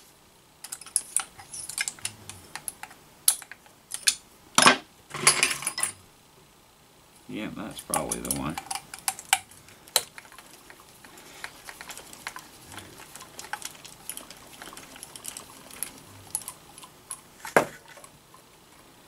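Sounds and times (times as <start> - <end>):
screwdriver and metal parts clicking: 0.6 - 4.2, 7.8 - 10.8, 11.4 - 17.2.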